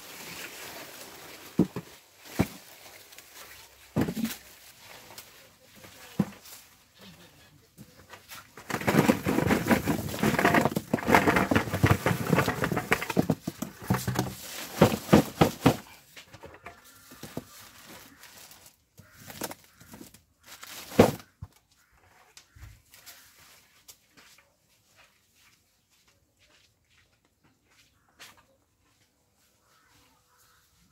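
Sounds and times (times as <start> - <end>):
plastic rustling: 0.0 - 6.7, 8.3 - 16.0, 17.0 - 21.4
cucumbers clattering into box: 8.6 - 17.4, 19.2 - 21.4.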